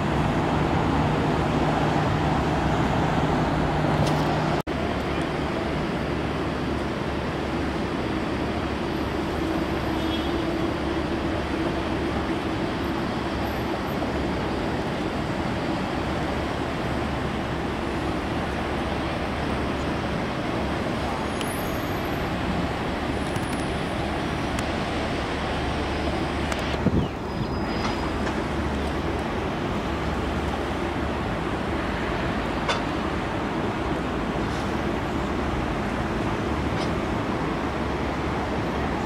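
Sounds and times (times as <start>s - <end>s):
airport noise: 0.0s - 39.0s
jet engines rumbling: 0.0s - 39.0s.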